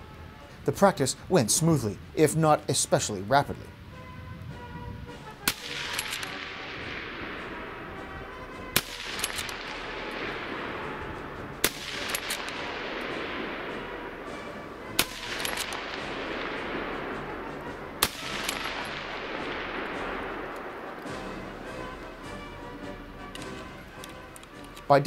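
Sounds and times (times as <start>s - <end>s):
rifle bolt clicks: 5.4s - 7.7s, 8.8s - 14.4s, 15.0s - 21.2s, 23.2s - 24.9s
rifle shots echoing: 5.4s - 24.0s.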